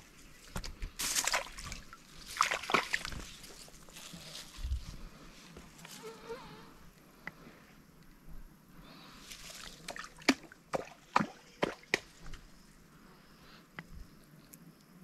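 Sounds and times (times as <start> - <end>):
water sloshing and dripping: 0.5 - 4.0, 9.3 - 12.5
sharp water slaps: 1.0 - 3.3, 9.8 - 12.3.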